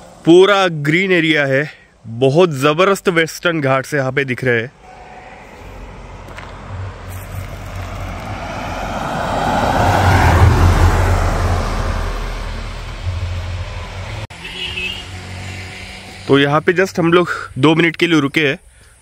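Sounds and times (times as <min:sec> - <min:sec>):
car driving past: 0:04.8 - 0:14.3.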